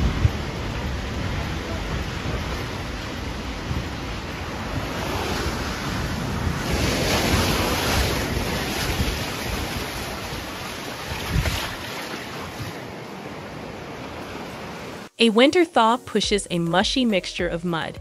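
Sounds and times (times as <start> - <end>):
wind buffeting microphone: 0.0 - 12.8
rushing churning water: 0.0 - 15.1.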